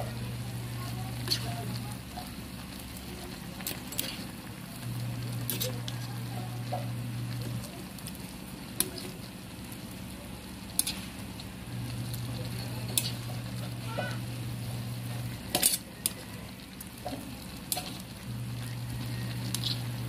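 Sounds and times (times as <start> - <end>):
chicken sizzling in a pan: 0.0 - 20.0
steady low hum: 0.0 - 20.0
ladle clicking against pan: 15.4 - 16.2, 17.0 - 18.0.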